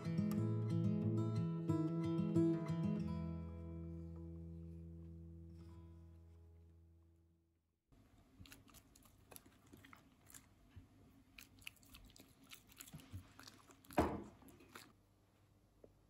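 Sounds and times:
chewing crunchy food: 8.1s - 15.0s.

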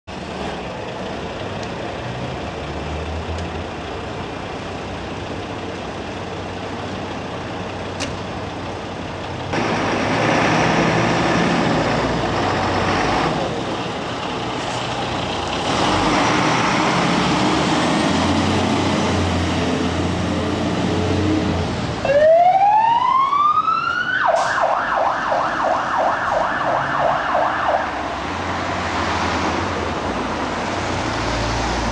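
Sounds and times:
diesel engine rumble: 0.1s - 22.5s
siren wailing and warbling: 22.0s - 28.0s.

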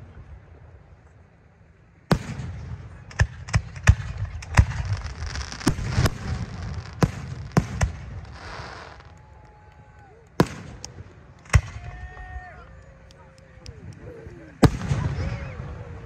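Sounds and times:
fireworks shells bursting: 3.0s - 9.3s.

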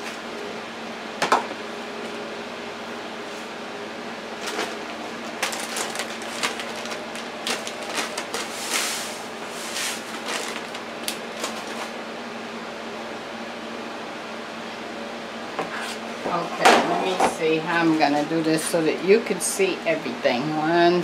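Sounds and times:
steady hum: 0.0s - 21.0s
foil bag crinkling: 4.3s - 12.0s.

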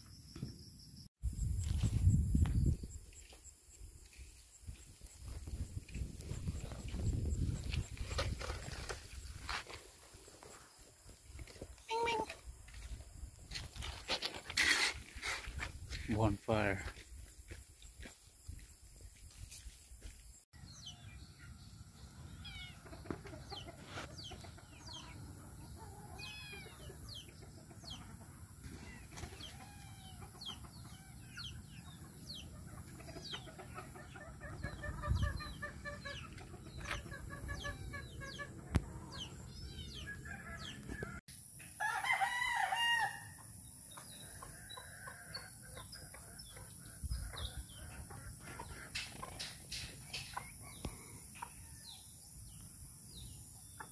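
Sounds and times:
chickens clucking: 6.3s - 13.0s, 21.4s - 41.1s, 43.4s - 52.1s
rooster crowing: 41.8s - 43.4s.

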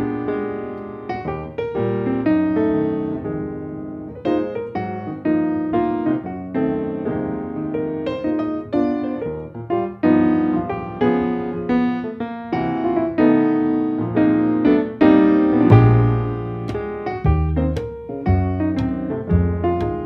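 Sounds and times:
piano music: 0.0s - 20.0s
deep bass note: 15.7s - 16.6s.

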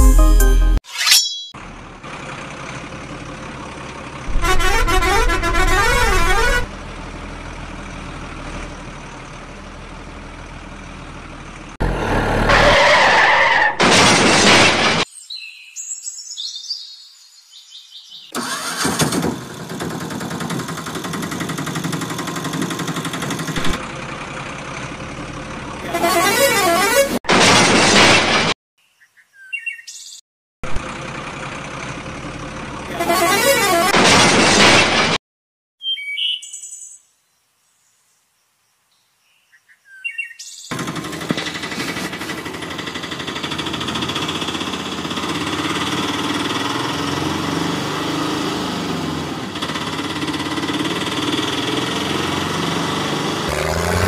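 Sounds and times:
vehicle noise: 1.1s - 15.1s, 18.3s - 28.6s, 30.6s - 35.2s, 40.7s - 54.0s
vehicle horn honking: 4.3s - 6.7s, 25.8s - 27.2s, 32.9s - 34.0s.

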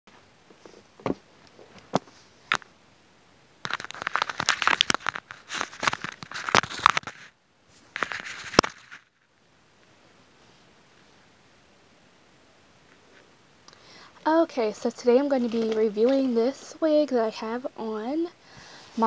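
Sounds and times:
plastic bag crinkling: 3.6s - 9.3s.

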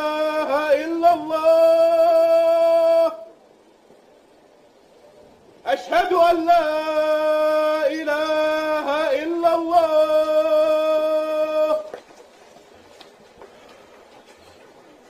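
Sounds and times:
man chanting call to prayer: 0.0s - 3.4s, 5.6s - 11.9s.

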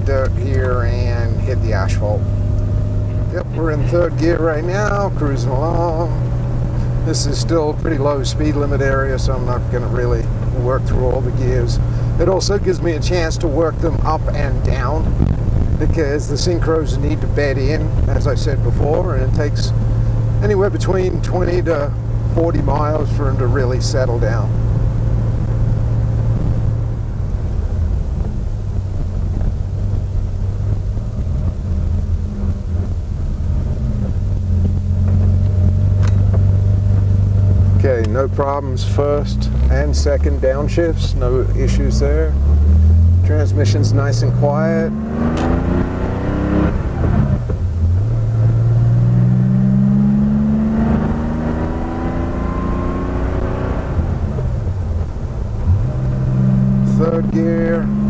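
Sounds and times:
car engine running: 0.0s - 58.0s.

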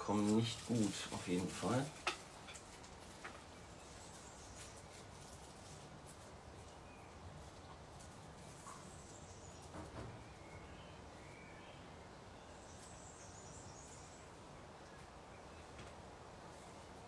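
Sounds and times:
faint steady hiss: 0.0s - 17.0s
faint bird chirps: 8.5s - 15.8s.

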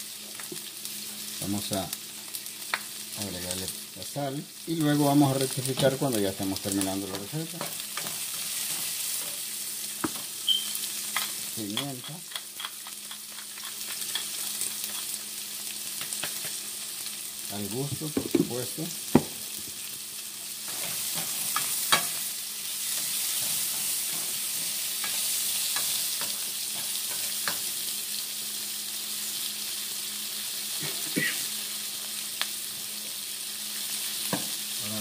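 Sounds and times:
onions frying in a skillet: 0.0s - 35.0s
spatula clicking against pan: 11.2s - 14.3s.

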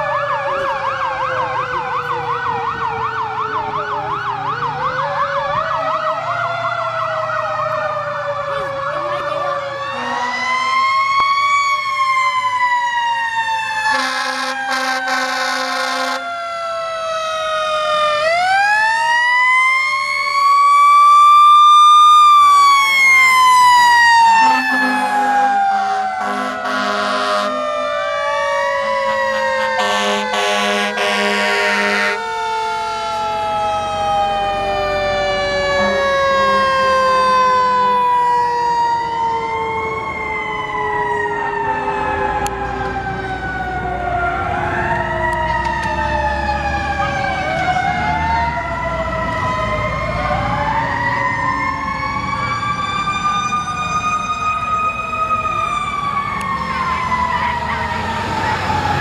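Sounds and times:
siren wailing: 0.0s - 59.0s
siren winding down: 0.0s - 59.0s
horn sounding: 9.0s - 10.7s, 13.9s - 16.2s, 24.3s - 27.9s, 29.1s - 32.3s.

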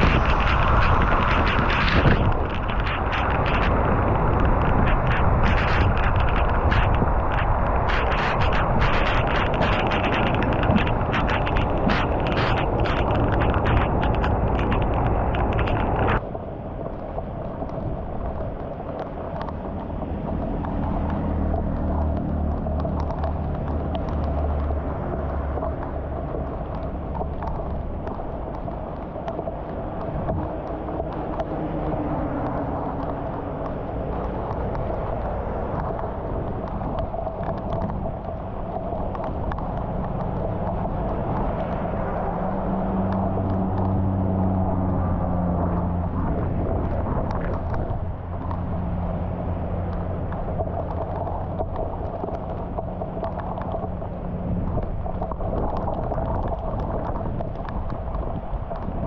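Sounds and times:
sharp drip ticks: 0.0s - 16.2s, 16.8s - 59.0s
heavy rain on water and pavement: 0.0s - 59.0s.

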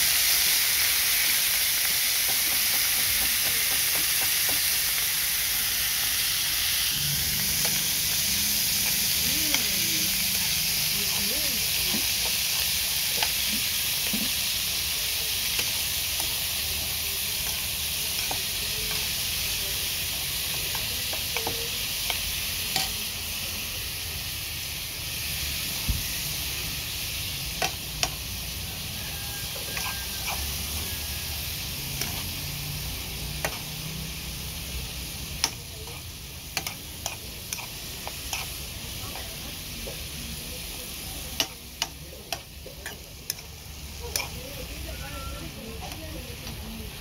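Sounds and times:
food sizzling in a frying pan: 0.0s - 47.0s
metal spoon scraping a pan: 29.4s - 32.4s, 33.0s - 33.8s, 35.3s - 40.2s, 40.9s - 46.7s.

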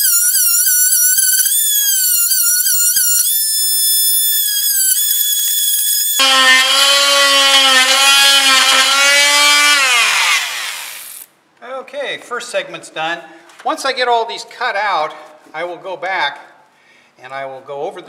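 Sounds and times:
oscillating multi-tool cutting wood: 0.0s - 11.3s.

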